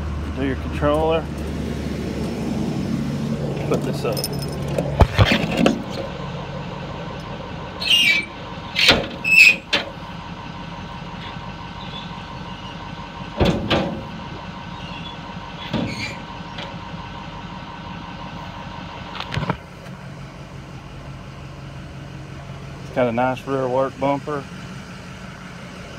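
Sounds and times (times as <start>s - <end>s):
brief squeak: 7.8s - 9.6s.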